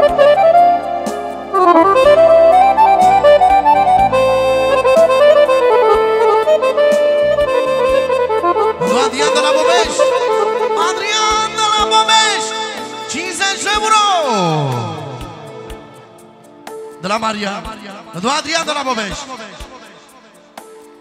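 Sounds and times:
accordion folk melody: 0:00.0 - 0:17.3
person's voice: 0:08.8 - 0:15.7, 0:17.0 - 0:19.6.

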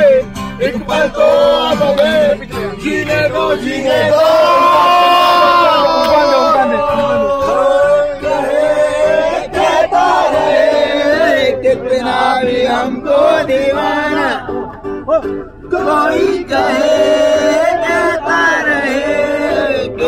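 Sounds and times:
group of men singing: 0:00.0 - 0:14.9, 0:15.6 - 0:20.0
instrumental backing music: 0:08.2 - 0:19.6.

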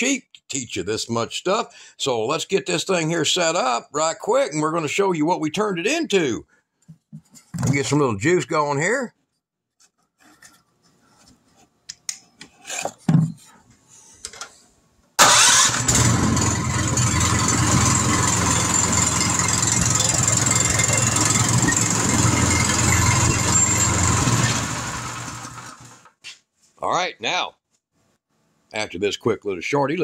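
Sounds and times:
small engine running: 0:15.2 - 0:26.1.

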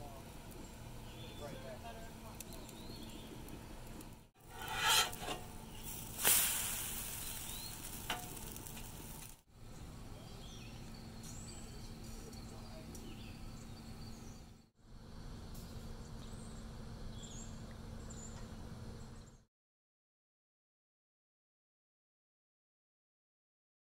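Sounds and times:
batter sizzling on a griddle: 0:00.0 - 0:09.4
metal spatula scraping: 0:04.4 - 0:06.0.

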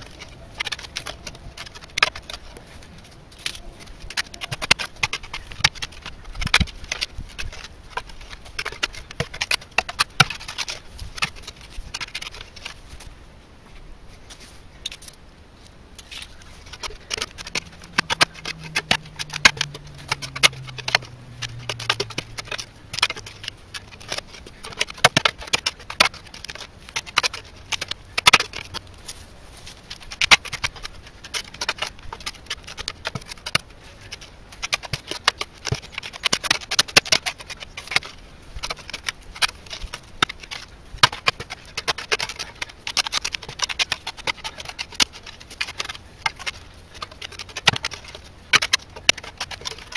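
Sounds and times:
digging tool chopping stony soil: 0:03.4 - 0:12.8, 0:16.0 - 0:29.0, 0:29.8 - 0:49.9.

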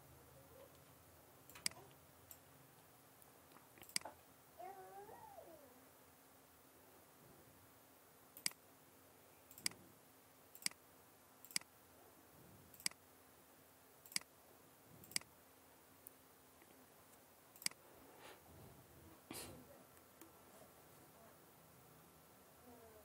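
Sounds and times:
faint steady hum: 0:00.0 - 0:23.0
computer mouse button clicking: 0:03.8 - 0:04.1, 0:11.5 - 0:11.7.

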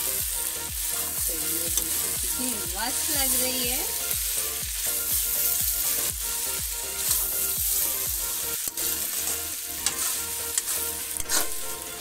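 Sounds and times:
vegetables sizzling in oil: 0:00.0 - 0:12.0
metal spatula stirring in pan: 0:06.9 - 0:12.0.

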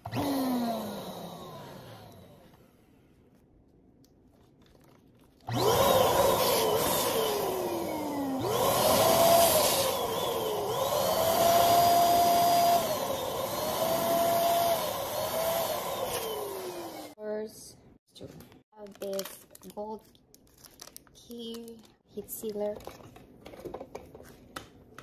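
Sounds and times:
electric balloon pump whining: 0:05.5 - 0:17.2.

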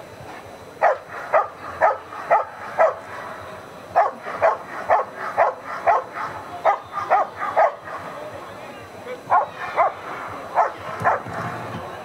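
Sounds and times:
dog barking: 0:00.8 - 0:03.4, 0:04.0 - 0:08.1, 0:09.3 - 0:11.5.

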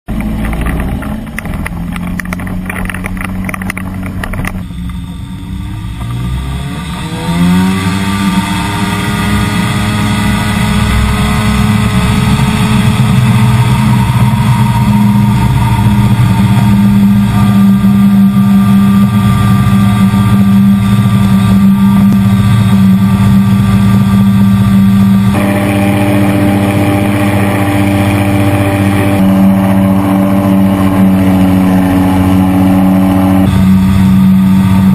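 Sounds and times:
propeller engine revving: 0:00.1 - 0:34.9.

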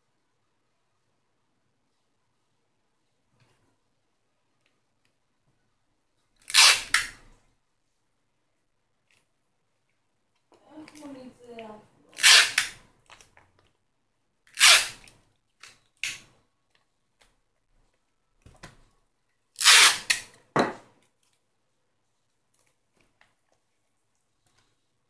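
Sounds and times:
adhesive tape ripping: 0:06.4 - 0:07.2, 0:12.1 - 0:13.3, 0:14.5 - 0:16.3, 0:19.6 - 0:20.3.

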